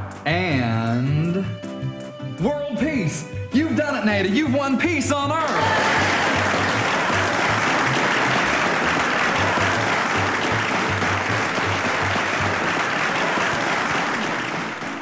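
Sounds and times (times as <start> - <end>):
background music with bass line: 0.0 - 13.0
audience applauding and cheering: 5.3 - 15.0.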